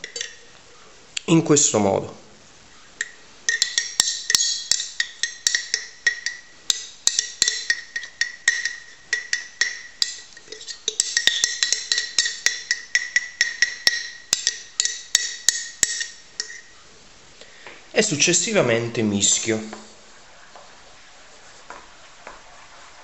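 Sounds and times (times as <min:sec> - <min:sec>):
metal spoon clinking in glass jar: 0:00.0 - 0:00.5, 0:03.0 - 0:16.7.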